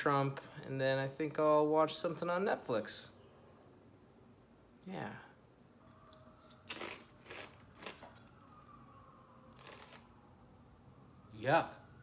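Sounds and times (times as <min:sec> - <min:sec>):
chips crunching while chewed: 0:06.4 - 0:08.3, 0:09.5 - 0:10.1.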